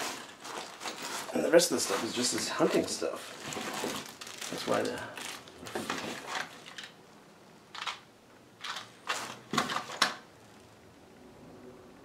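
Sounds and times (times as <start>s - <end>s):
plastic packaging crinkling: 0.0s - 7.0s, 8.6s - 10.2s.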